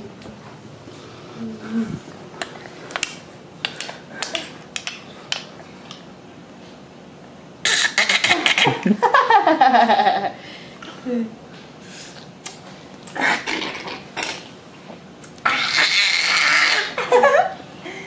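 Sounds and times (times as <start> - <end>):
woman laughing loudly: 8.2 - 10.4, 16.7 - 18.0.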